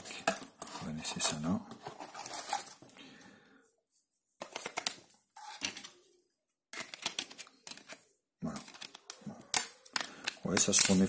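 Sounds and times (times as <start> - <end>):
cardboard box rustling: 0.6 - 2.8.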